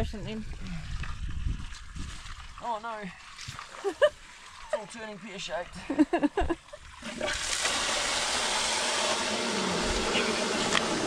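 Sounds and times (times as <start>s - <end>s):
water gushing from pipe: 6.6s - 11.0s.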